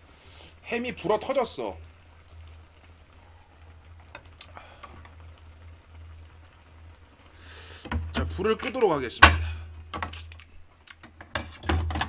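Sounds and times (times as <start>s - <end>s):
utensils clicking on pan: 7.9s - 12.0s.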